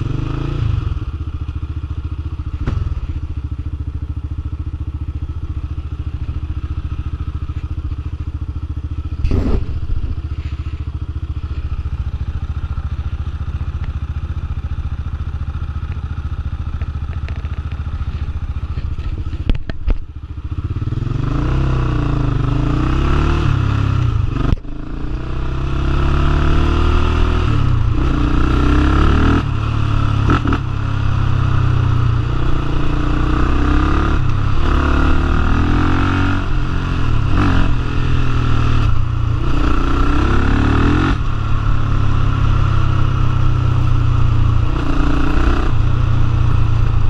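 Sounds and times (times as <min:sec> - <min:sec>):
quad engine revving: 0:00.0 - 0:01.0, 0:09.2 - 0:10.1, 0:20.7 - 0:31.1, 0:32.3 - 0:41.3.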